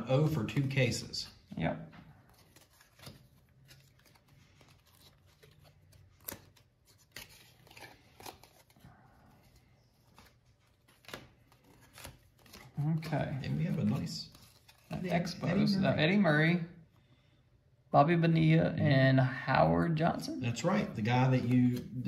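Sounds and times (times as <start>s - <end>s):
cards flicking and rustling: 2.1s - 15.7s.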